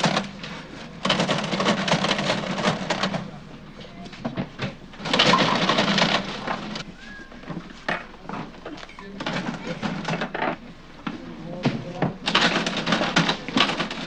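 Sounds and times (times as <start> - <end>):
cash register clicking: 0.0 - 3.4, 4.6 - 6.8, 12.2 - 14.0.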